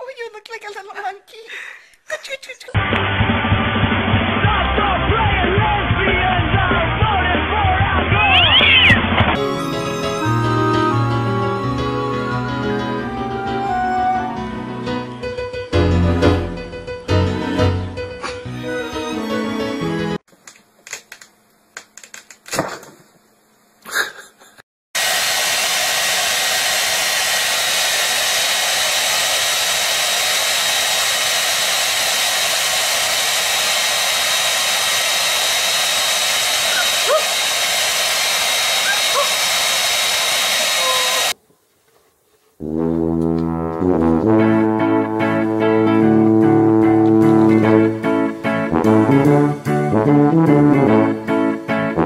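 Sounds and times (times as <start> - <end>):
guitar music: 9.4 - 20.2, 43.2 - 52.0
rushing blown air: 25.0 - 41.4.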